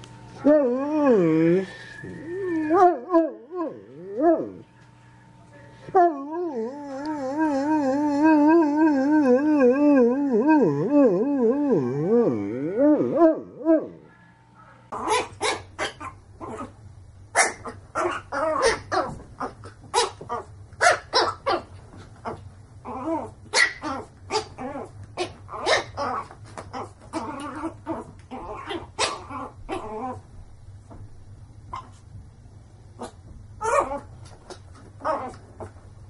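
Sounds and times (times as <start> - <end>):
dog barking: 14.6 - 16.0.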